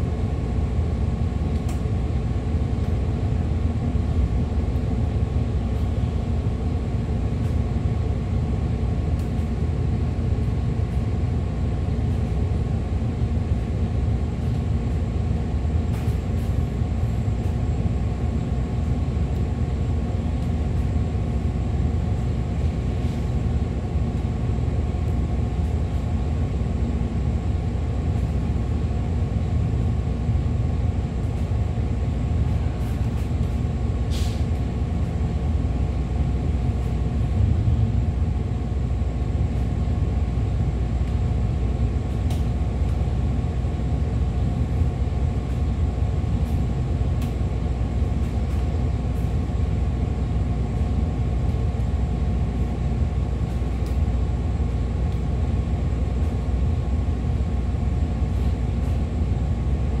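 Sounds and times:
bus engine idling: 0.0 - 40.5
brief air hiss: 34.1 - 34.5.

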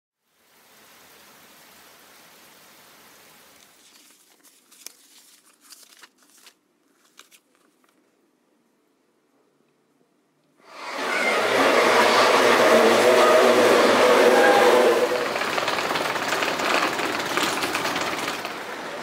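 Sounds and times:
paper envelopes rustling: 3.6 - 8.1
rain hissing: 10.6 - 19.0.

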